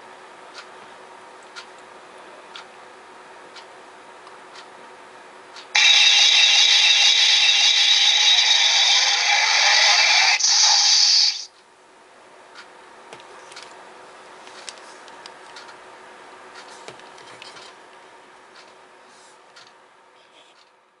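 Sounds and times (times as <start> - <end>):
phaser sound effect blast: 5.8 - 11.5.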